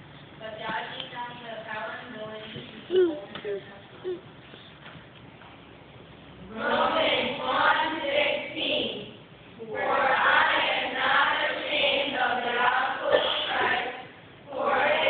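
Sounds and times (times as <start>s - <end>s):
children's choir singing: 6.5s - 15.0s.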